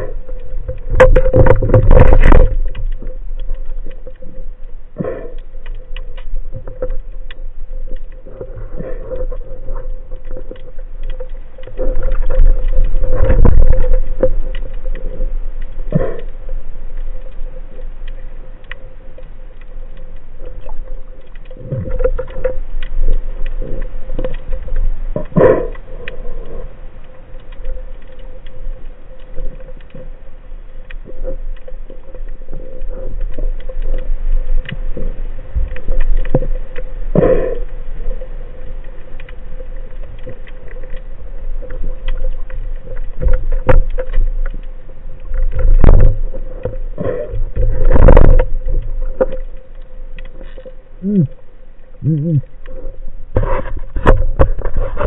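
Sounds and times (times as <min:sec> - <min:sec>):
clicks and bumps: 0:00.0 - 0:26.2, 0:39.2 - 0:51.4, 0:52.0 - 0:55.0
underwater hum and rumble: 0:00.0 - 0:55.0.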